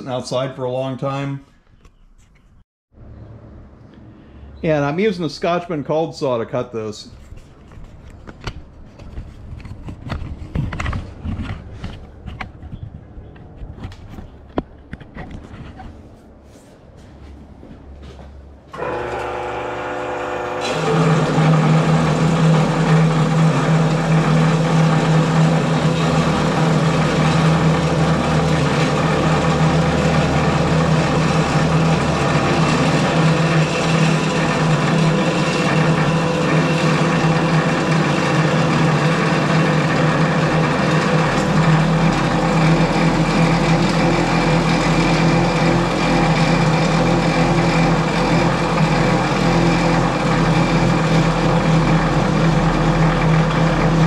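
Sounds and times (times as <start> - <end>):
cold saw cutting metal tube: 18.8 - 54.0.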